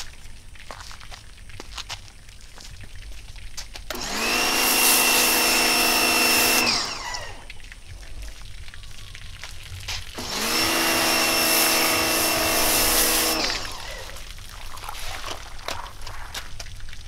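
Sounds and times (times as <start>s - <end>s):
pressure washer motor whine: 3.9s - 7.5s, 10.2s - 14.2s
hiss of spray: 10.9s - 14.1s.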